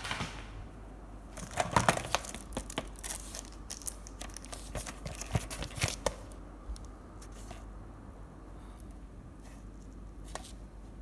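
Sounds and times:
plastic wrapping crinkling: 1.4 - 6.9.

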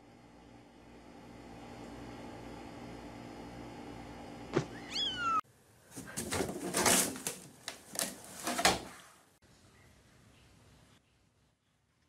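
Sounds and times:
kitten meowing: 4.6 - 5.4.

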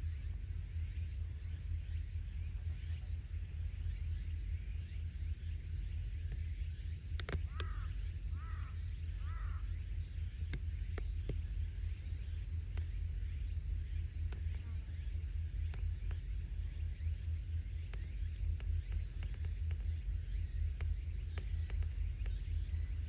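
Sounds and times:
steady low rumble: 0.0 - 23.0
sharp clicks: 7.1 - 7.9, 10.4 - 11.6, 17.8 - 22.8
crow cawing: 7.4 - 9.8.

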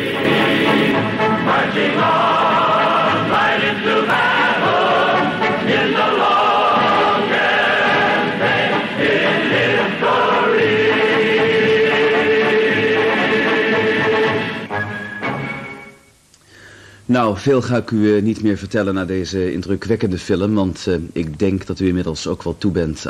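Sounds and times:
choir singing chords: 0.0 - 16.1.

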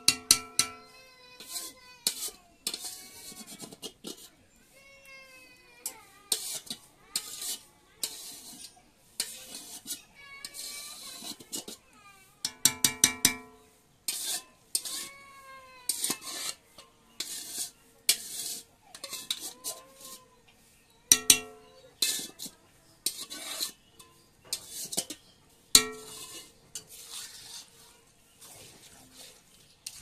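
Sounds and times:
metallic pan ring: 0.0 - 1.0, 21.1 - 22.3, 23.0 - 25.2, 25.8 - 27.0
spatula scraping frying pan: 0.0 - 4.5, 5.8 - 30.0.

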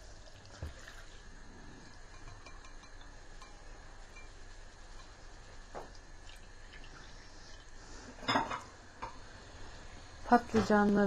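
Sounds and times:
water dripping into bowl: 1.9 - 7.8.

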